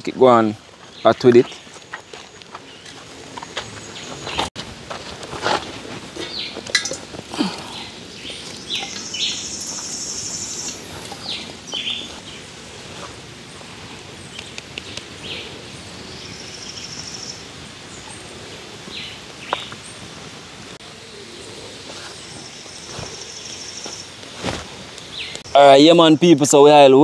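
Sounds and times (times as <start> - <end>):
wild birds chirping: 0.0 - 4.6, 5.6 - 27.0
high buzzing bird trill: 8.2 - 12.8.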